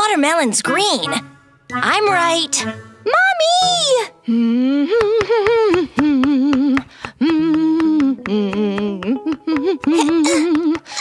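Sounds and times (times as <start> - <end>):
woman humming: 3.7 - 11.0.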